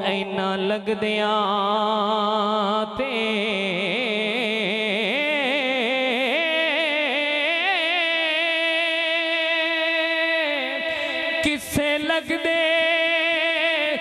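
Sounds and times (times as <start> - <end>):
man singing wordless melisma: 0.0 - 14.0.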